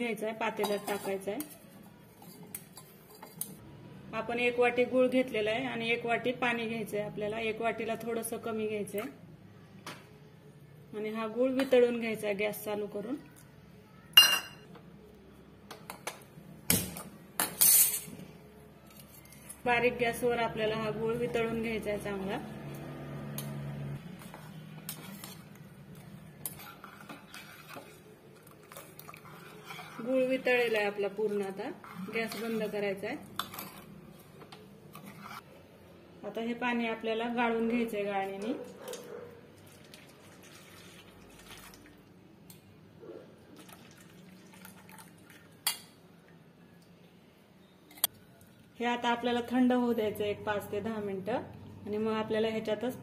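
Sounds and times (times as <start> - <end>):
spoon clinking and scraping saucepan: 0.6 - 3.6, 14.2 - 14.7, 17.4 - 18.2, 24.2 - 25.6, 26.3 - 35.4
liquid trickling into a bowl: 39.6 - 42.1, 43.5 - 45.7.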